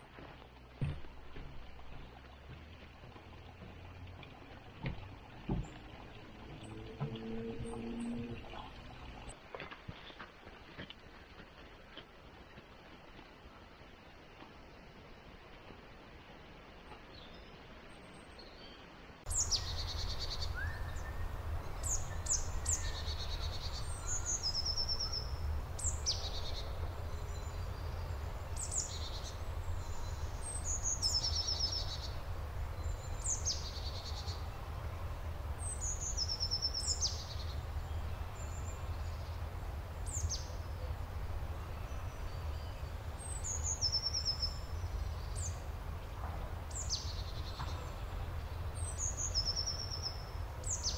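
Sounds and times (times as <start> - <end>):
songbirds singing: 0.8 - 9.4, 16.9 - 50.9
steady low rumble: 19.3 - 50.8.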